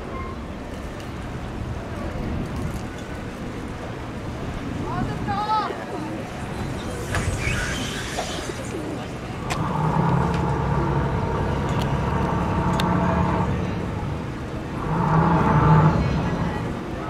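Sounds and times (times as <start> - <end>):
motor engine humming: 6.0 - 17.0.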